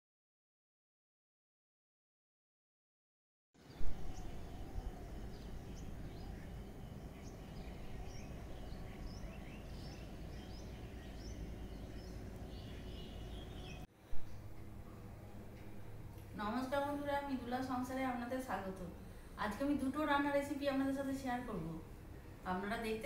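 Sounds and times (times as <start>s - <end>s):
birds chirping: 3.6s - 15.9s
low steady hum: 3.6s - 23.0s
low outdoor rumble: 3.7s - 23.0s.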